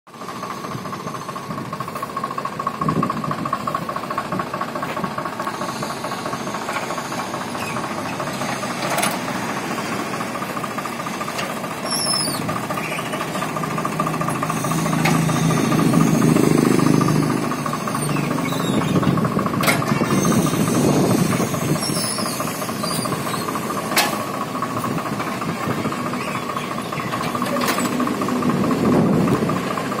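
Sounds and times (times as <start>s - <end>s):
tractor diesel engine running: 0.1s - 30.0s
metallic clanks of plough: 8.4s - 9.2s, 19.6s - 20.1s, 23.9s - 24.3s, 27.0s - 28.1s.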